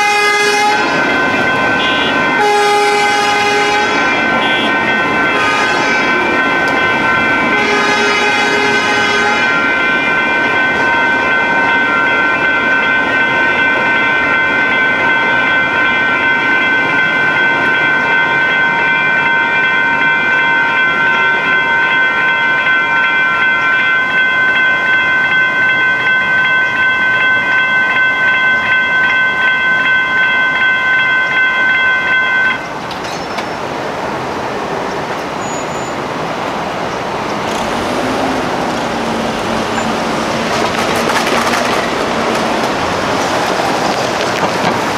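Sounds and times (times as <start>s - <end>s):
road traffic noise: 0.0s - 19.2s, 31.1s - 44.9s
train rumbling past: 0.0s - 23.6s, 31.2s - 44.9s
railroad crossing bell ringing: 0.0s - 44.9s.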